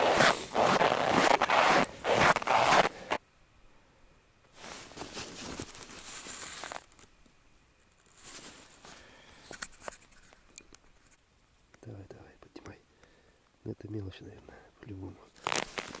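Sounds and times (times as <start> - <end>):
footsteps crunching through snow: 0.0 - 3.2, 4.6 - 6.9, 8.1 - 9.0, 15.4 - 16.0
faint rustling: 4.5 - 7.2, 7.8 - 11.2, 15.3 - 16.0.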